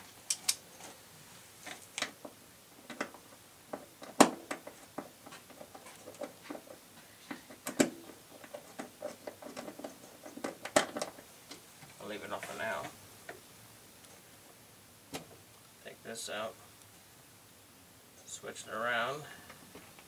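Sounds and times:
small clicks and knocks: 0:00.2 - 0:01.0, 0:01.6 - 0:13.4.

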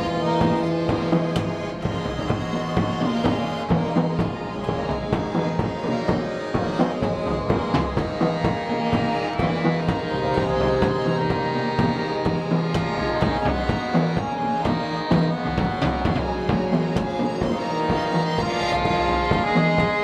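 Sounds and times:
accordion holding notes: 0:00.0 - 0:20.0
drum and cymbal hits: 0:00.0 - 0:20.0.

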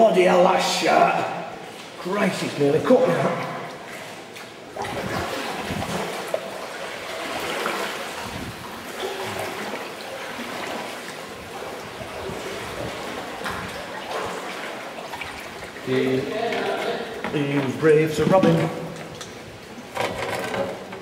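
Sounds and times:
sea water sloshing in a cave: 0:00.6 - 0:21.0
paddle stroke splashes: 0:01.6 - 0:17.3.

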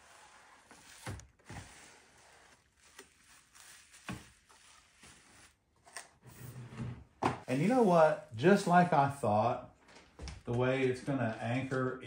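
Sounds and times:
plastic bag and cardboard rustling: 0:00.0 - 0:06.0.

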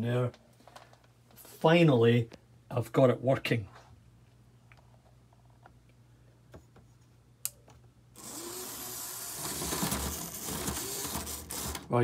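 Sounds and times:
model train electric motor running: 0:08.2 - 0:11.8.

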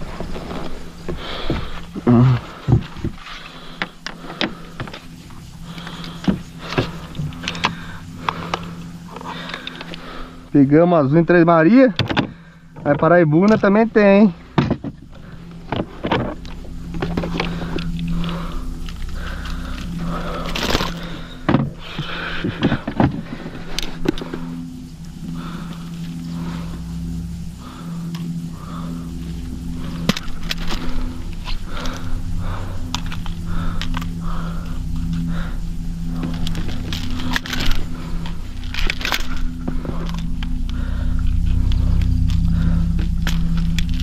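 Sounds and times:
steady low hum: 0:00.0 - 0:44.0
clicks and knocks of handling: 0:12.0 - 0:13.8
gear clicking and knocking: 0:36.2 - 0:44.0.

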